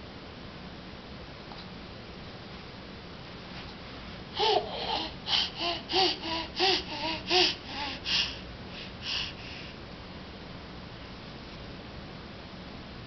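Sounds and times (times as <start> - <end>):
baby laughing: 4.4 - 8.1.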